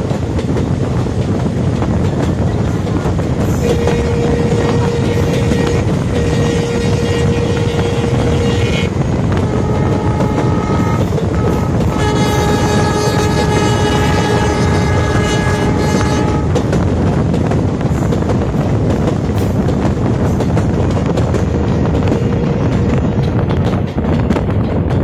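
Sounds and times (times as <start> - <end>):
train wheels rumbling on track: 0.0 - 25.0
locomotive horn blasts: 3.6 - 16.6.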